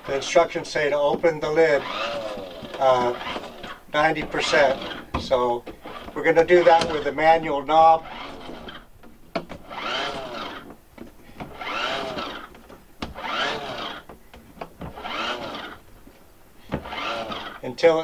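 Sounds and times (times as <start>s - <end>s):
whirring scrape: 1.6s - 7.2s, 7.9s - 8.9s, 9.6s - 10.7s, 11.4s - 12.5s, 13.2s - 14.1s, 14.9s - 15.8s, 16.8s - 17.6s
roof vent lid cranked open: 1.6s - 10.7s.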